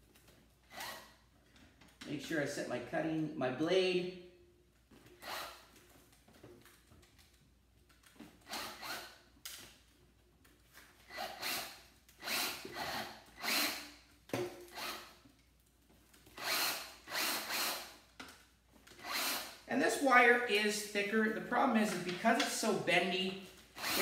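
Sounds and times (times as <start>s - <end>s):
drill short bursts: 11.1s - 14.0s, 16.4s - 18.0s, 19.0s - 19.7s, 23.8s - 24.0s.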